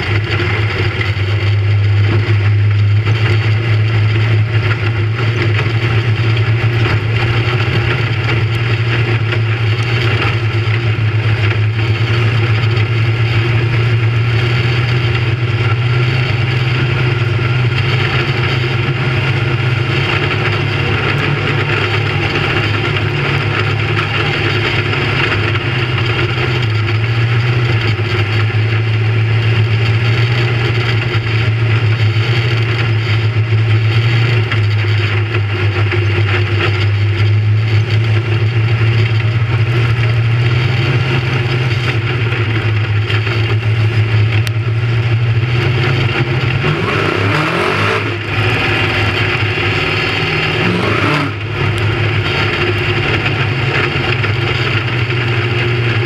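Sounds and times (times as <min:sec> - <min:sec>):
race car engine under load: 0:00.0 - 0:56.0
track noise: 0:00.0 - 0:56.0.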